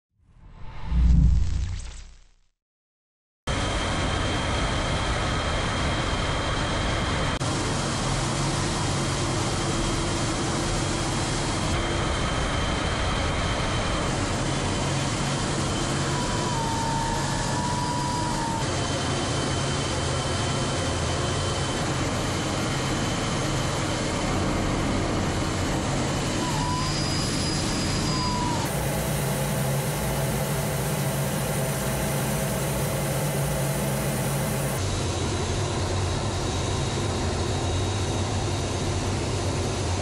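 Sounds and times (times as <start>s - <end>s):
faint high whine: 26.4s - 35.4s
jet engine and airflow rushing: 27.6s - 40.0s.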